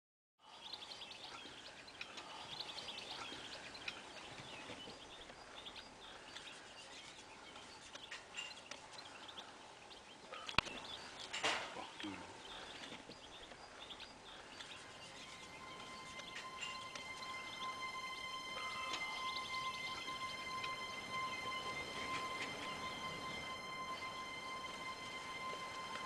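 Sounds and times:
small birds chirping: 0.4 - 26.0
soft hiss: 14.2 - 26.0.

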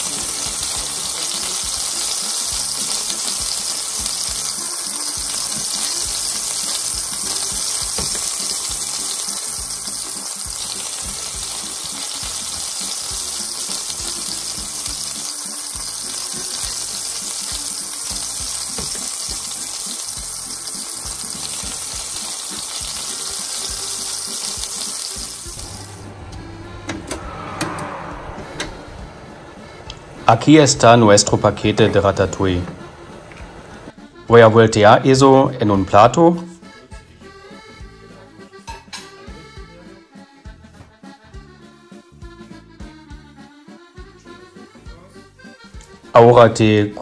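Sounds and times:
vegetables sizzling in hot oil: 0.0 - 26.0.

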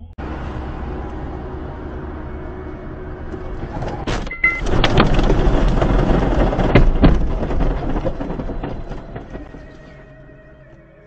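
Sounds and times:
car road noise: 0.0 - 11.0
car rumbling over rough grass: 0.2 - 10.8
heavy thumps: 3.3 - 10.0.

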